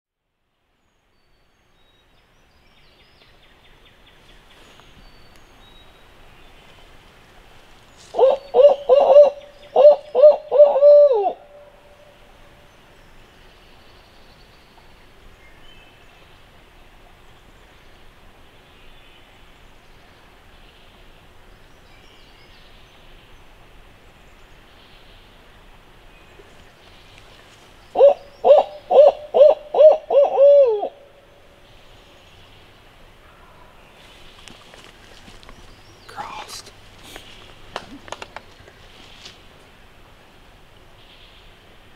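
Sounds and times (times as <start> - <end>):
owl hooting: 8.1 - 12.1, 27.9 - 31.2.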